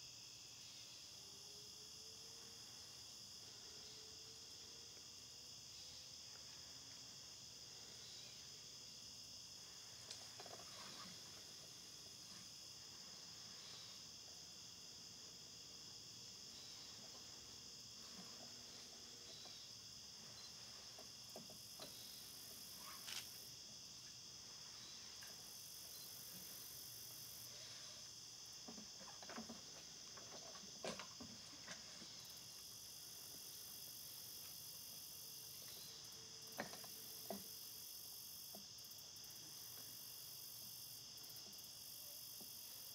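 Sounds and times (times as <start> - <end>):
high insect buzz: 0.0 - 42.9
insects chirring: 0.0 - 42.9.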